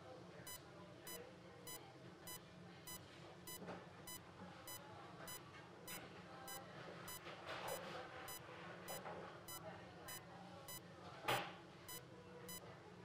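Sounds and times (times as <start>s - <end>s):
patient monitor short beeps: 0.5s - 10.8s.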